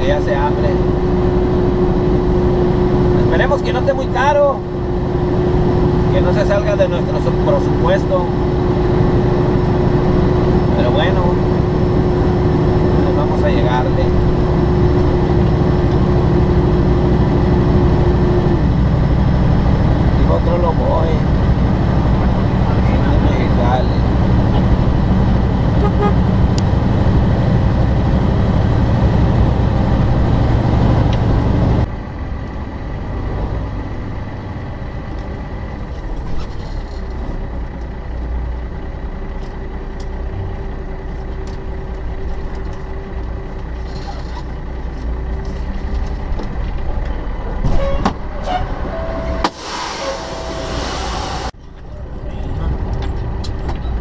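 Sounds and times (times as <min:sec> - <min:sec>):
truck engine and road noise: 0:00.0 - 0:54.0
short electronic tone: 0:47.8 - 0:51.4
air hiss: 0:49.4 - 0:51.6.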